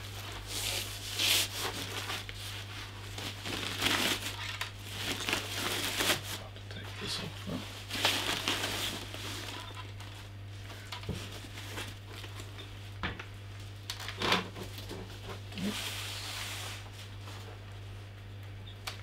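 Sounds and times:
plastic bag rustling and crinkling: 0.0 - 12.6.

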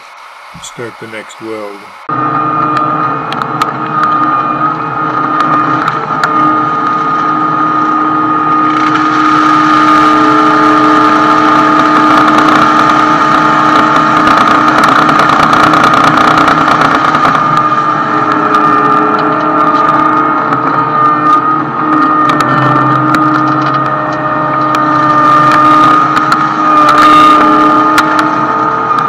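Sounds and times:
engine and hydraulic hum: 0.0 - 29.0.

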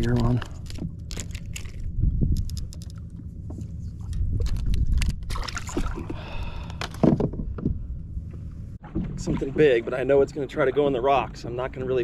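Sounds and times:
wind rumble on microphone: 0.0 - 9.5.

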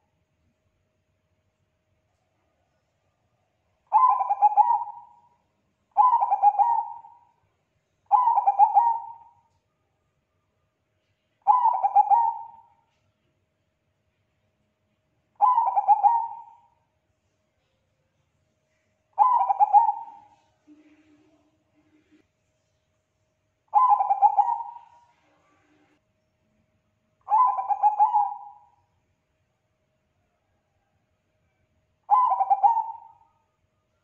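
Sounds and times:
dove cooing: 3.9 - 5.2, 6.0 - 7.3, 8.1 - 9.4, 11.4 - 12.7, 15.4 - 16.7, 19.2 - 21.4, 23.7 - 25.2, 27.3 - 28.8, 32.1 - 33.3.

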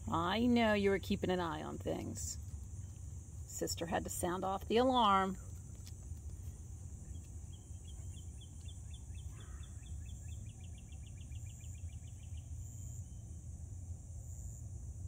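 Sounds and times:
insect chorus: 0.0 - 15.0
bird trilling: 7.5 - 11.8.

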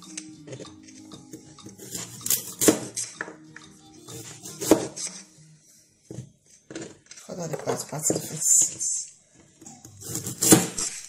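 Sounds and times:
soft background music: 0.0 - 10.8
knife cutting carrot on board: 1.3 - 3.1, 4.1 - 5.2, 9.6 - 11.0.

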